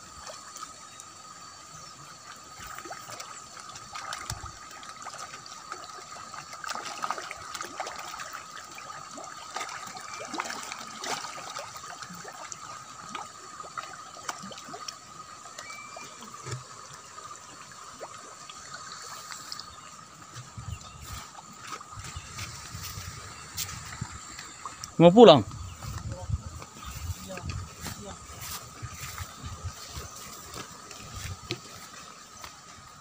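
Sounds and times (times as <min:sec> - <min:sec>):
fish splashing at water surface: 0:02.5 - 0:19.8.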